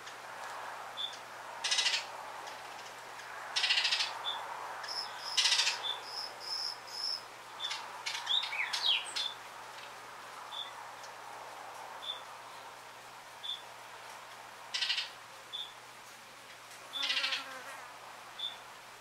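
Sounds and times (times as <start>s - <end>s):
harsh bird chatters: 4.9s - 9.3s
down-slurred bird calls: 16.9s - 17.5s.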